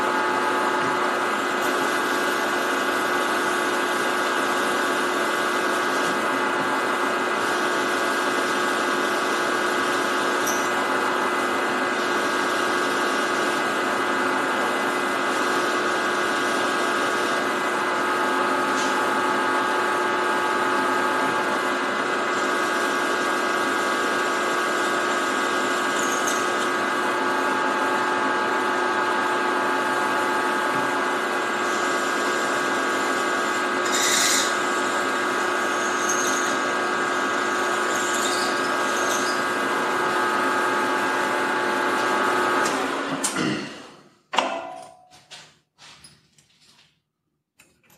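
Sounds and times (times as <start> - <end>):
milling machine drilling metal: 0.0 - 43.2
sharp metal scrape: 33.8 - 34.5.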